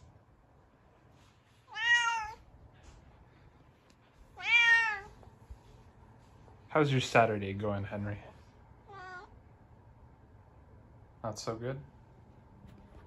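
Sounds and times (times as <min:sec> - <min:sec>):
cat meowing: 0:01.7 - 0:02.4, 0:04.4 - 0:05.2, 0:08.8 - 0:09.4.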